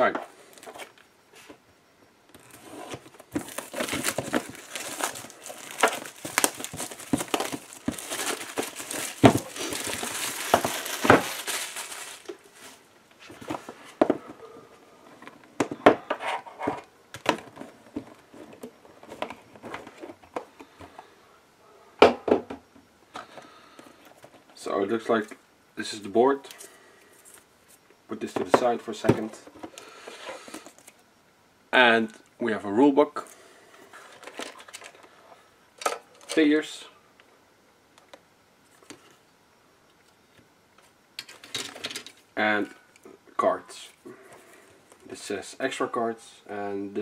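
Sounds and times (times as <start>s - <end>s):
plastic wrap crinkling: 3.2s - 12.9s.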